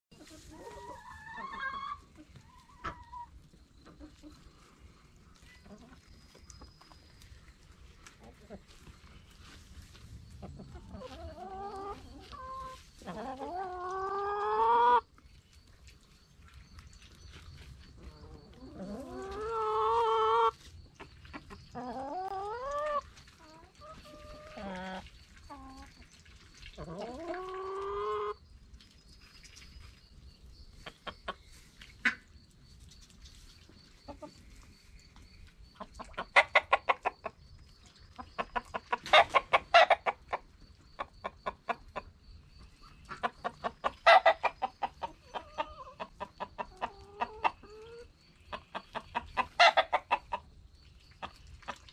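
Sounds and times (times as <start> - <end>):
hens and rooster calling: 0.1 - 4.9, 10.3 - 15.1, 17.9 - 25.9, 26.8 - 28.4, 35.7 - 37.4, 38.2 - 42.2, 42.8 - 50.5
hens clucking rapidly: 0.1 - 7.0, 10.2 - 15.1, 17.4 - 28.4, 30.7 - 32.4, 35.6 - 51.9.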